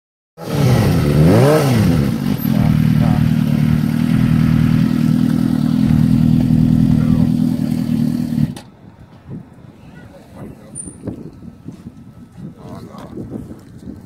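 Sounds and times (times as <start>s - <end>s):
motorcycle engine revving and idling: 0.4s - 8.7s.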